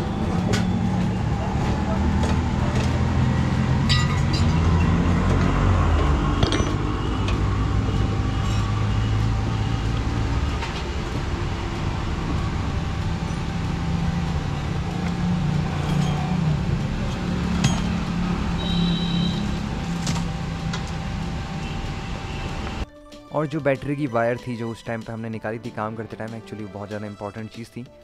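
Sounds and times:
vehicle engines rumbling: 0:00.0 - 0:22.8.

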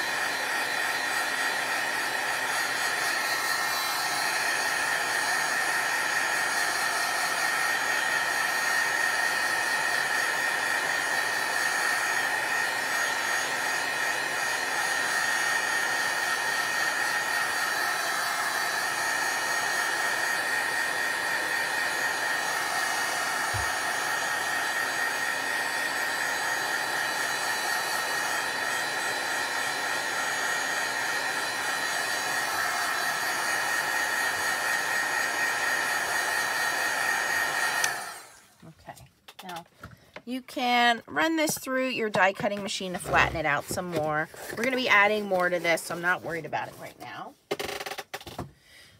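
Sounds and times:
heat tool fan whining: 0:00.0 - 0:38.8.

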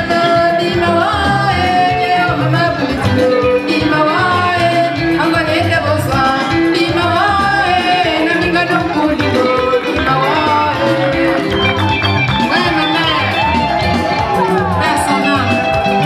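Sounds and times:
woman singing into microphone: 0:00.0 - 0:16.0
dance music with steady beat: 0:06.6 - 0:16.0.

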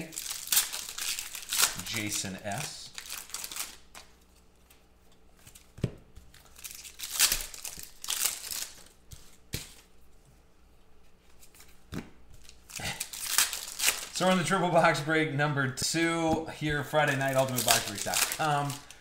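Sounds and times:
foil pack tearing and crinkling: 0:00.0 - 0:04.1, 0:06.3 - 0:09.2, 0:12.4 - 0:14.4, 0:16.9 - 0:19.0.

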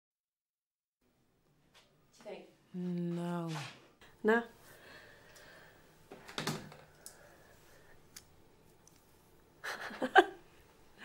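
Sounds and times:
soft breath: 0:04.6 - 0:06.0, 0:06.9 - 0:08.1
woman laughing breathily: 0:09.6 - 0:11.0.

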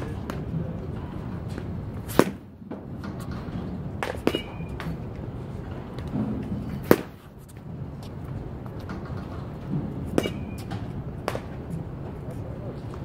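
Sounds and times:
bat striking ball: 0:01.6 - 0:07.4, 0:09.0 - 0:11.6.

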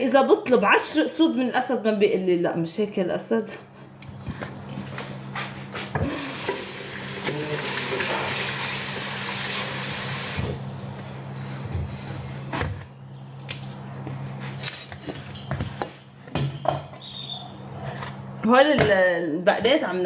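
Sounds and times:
water running: 0:06.0 - 0:10.6.

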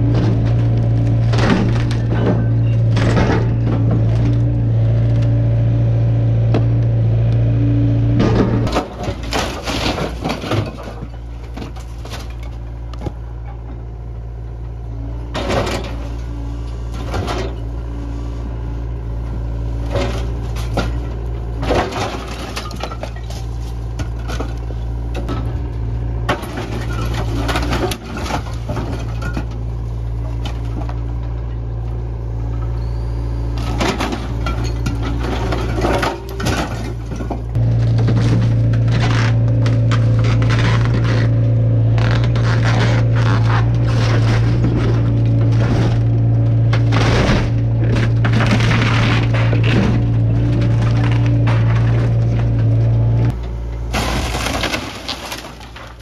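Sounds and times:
excavator diesel engine: 0:00.0 - 0:56.0
block and wood breaking: 0:42.2 - 0:52.6, 0:53.7 - 0:56.0.

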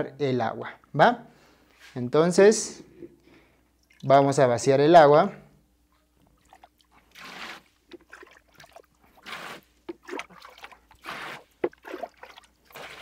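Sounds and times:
water sloshing and splashing: 0:03.8 - 0:04.2, 0:06.1 - 0:13.0.

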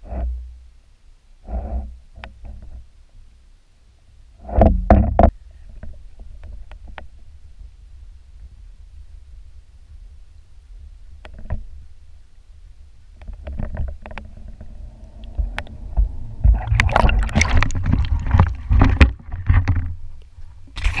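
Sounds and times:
muffled underwater rumble: 0:04.4 - 0:21.0
water splashing: 0:13.5 - 0:19.9.

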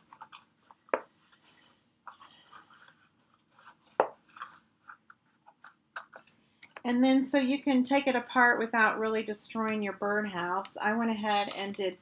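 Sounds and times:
paper crinkling and rubbing: 0:00.0 - 0:06.7.

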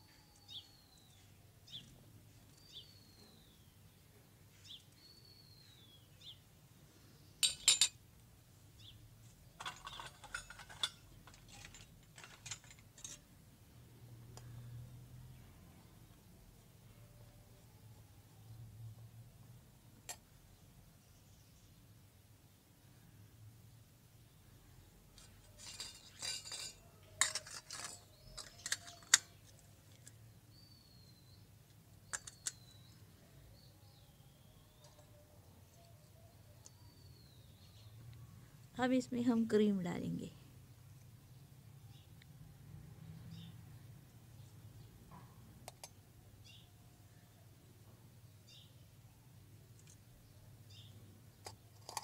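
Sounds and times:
bird chirping: 0:00.0 - 0:07.8, 0:25.2 - 0:38.6, 0:43.0 - 0:51.6
utensils clinking against steel bowl: 0:07.4 - 0:08.0, 0:09.6 - 0:13.2, 0:25.6 - 0:29.4.

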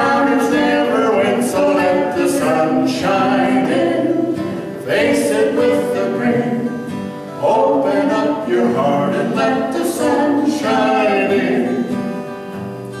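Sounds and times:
man and woman singing in harmony: 0:00.0 - 0:12.2
acoustic guitar: 0:00.0 - 0:13.0.

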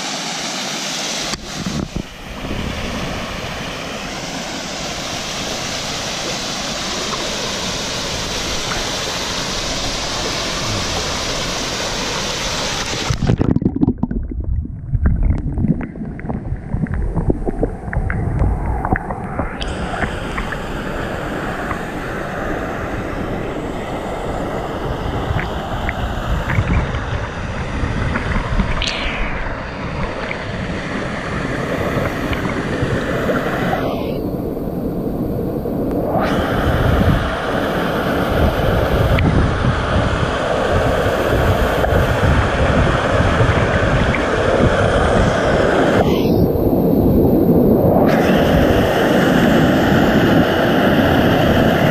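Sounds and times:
waterfall splashing into pool: 0:03.8 - 0:13.6.

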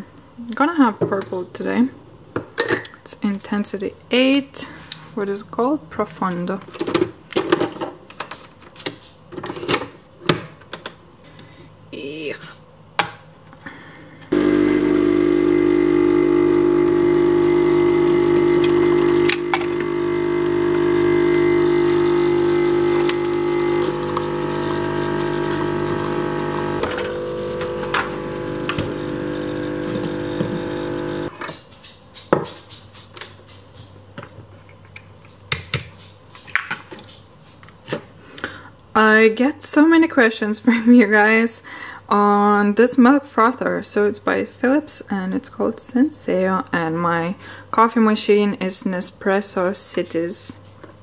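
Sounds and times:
coffee machine pump buzzing: 0:14.3 - 0:31.3
cups clicking and knocking: 0:17.6 - 0:31.3.

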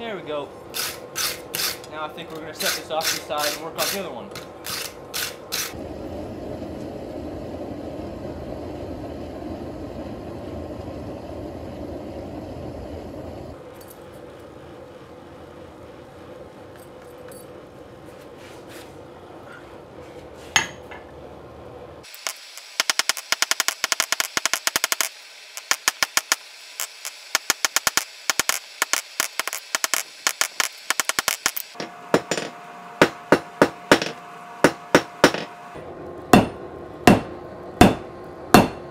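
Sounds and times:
hammer striking hot steel on anvil: 0:29.7 - 0:35.5, 0:36.3 - 0:38.9.

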